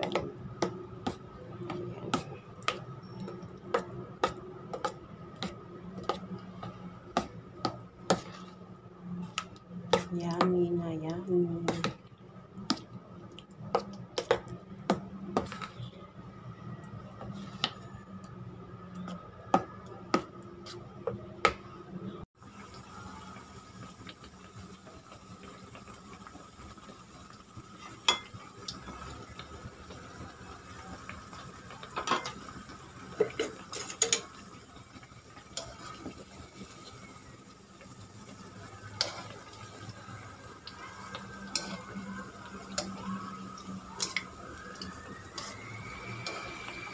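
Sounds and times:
fritters sizzling in oil: 0:22.3 - 0:46.9.

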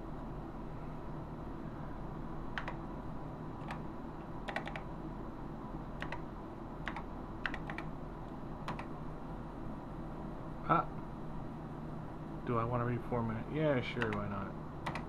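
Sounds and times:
steady low hum: 0:00.0 - 0:15.0
keyboard key clicks: 0:02.6 - 0:02.8, 0:04.5 - 0:04.9, 0:06.0 - 0:06.2, 0:06.9 - 0:07.9, 0:08.7 - 0:08.9, 0:14.0 - 0:15.0.

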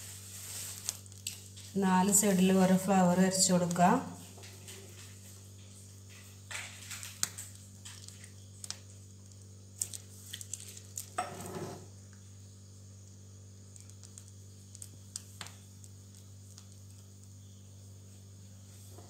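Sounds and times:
plastic piping bag rustling: 0:00.0 - 0:11.2
steady low hum: 0:00.0 - 0:19.0.

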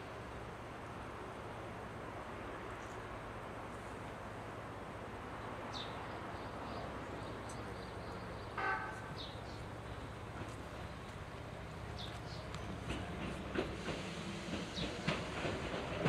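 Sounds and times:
train rumble and hum: 0:00.0 - 0:16.0
small birds chirping: 0:05.4 - 0:13.0.

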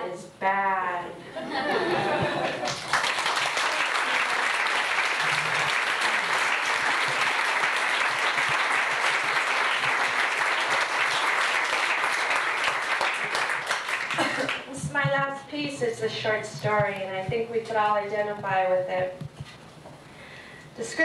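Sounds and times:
audience applauding: 0:02.2 - 0:14.8.

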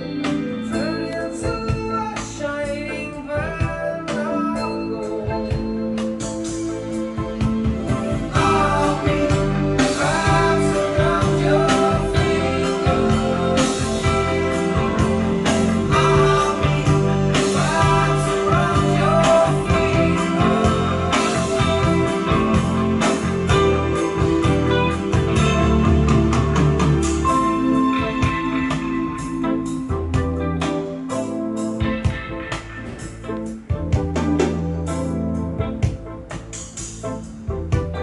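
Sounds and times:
song with singing over bass: 0:00.0 - 0:38.0.

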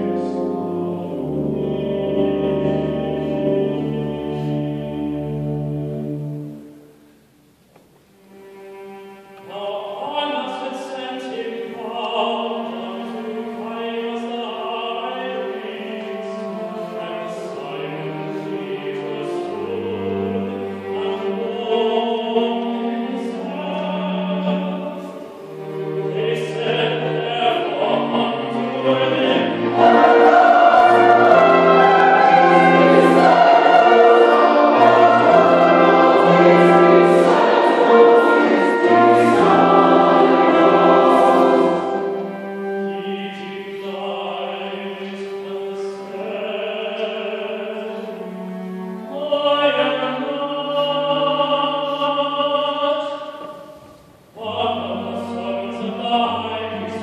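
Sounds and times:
mixed choir singing: 0:00.0 - 0:06.2, 0:11.4 - 0:53.6
instrumental accompaniment: 0:16.1 - 0:43.8.

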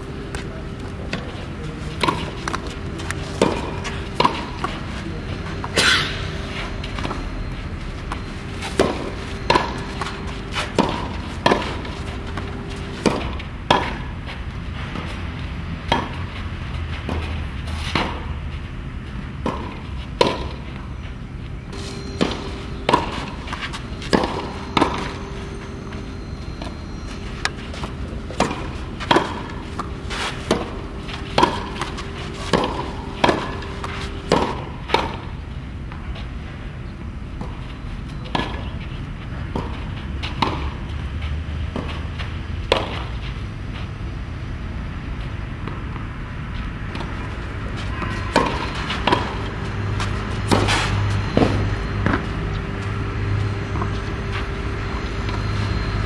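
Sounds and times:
racket striking tennis ball: 0:01.0 - 0:07.3, 0:08.0 - 0:18.4, 0:19.4 - 0:20.9, 0:21.7 - 0:35.4, 0:39.4 - 0:40.8, 0:41.7 - 0:43.3, 0:46.9 - 0:56.0
ball bouncing on clay court: 0:21.9 - 0:35.2, 0:46.9 - 0:56.0.

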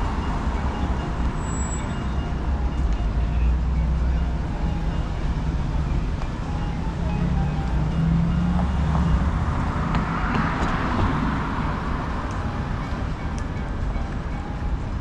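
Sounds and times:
low traffic rumble: 0:00.0 - 0:15.0
car passing: 0:04.5 - 0:13.4.

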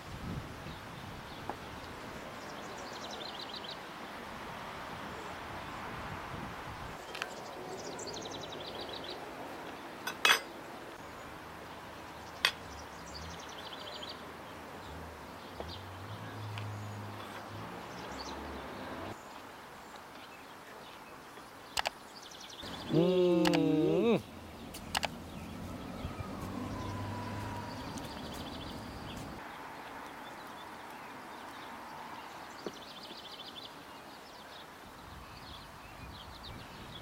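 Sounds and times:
birdsong trills: 0:07.0 - 0:11.3, 0:20.2 - 0:29.5
cutlery clinking on metal dishes: 0:10.1 - 0:10.5.

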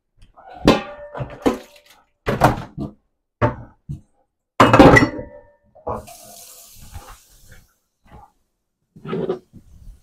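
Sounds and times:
kitchenware knocking and clattering: 0:00.6 - 0:04.0, 0:04.6 - 0:06.1.

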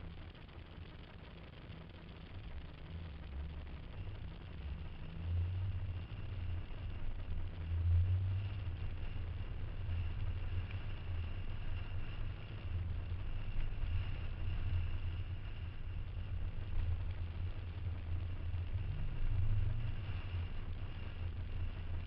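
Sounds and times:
car engine and road rumble: 0:01.8 - 0:22.0.

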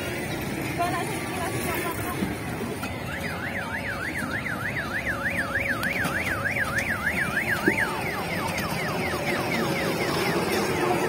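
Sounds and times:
warbling electronic siren: 0:03.0 - 0:11.0.

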